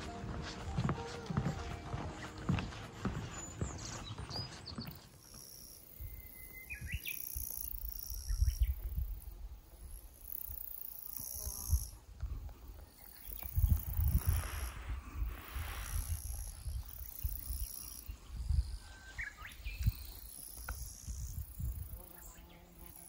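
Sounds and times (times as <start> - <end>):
insects trilling: 5.2 - 23.0
wind rumbling on microphone: 7.7 - 10.1, 11.6 - 22.5.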